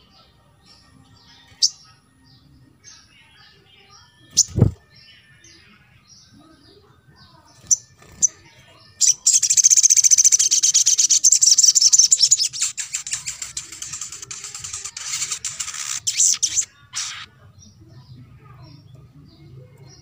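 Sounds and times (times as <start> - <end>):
bird high fast trill: 9.0 - 17.3.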